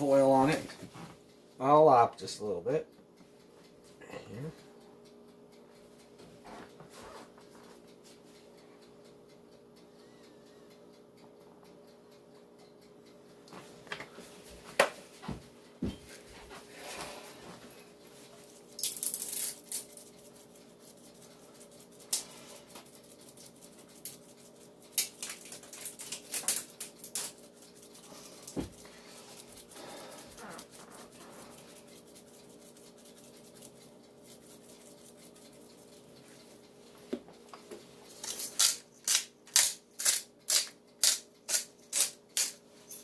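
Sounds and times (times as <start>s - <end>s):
faint steady hum: 0.0s - 43.0s
seasoning shaker rattling: 18.6s - 36.1s
scratchy rubbing: 27.8s - 36.0s.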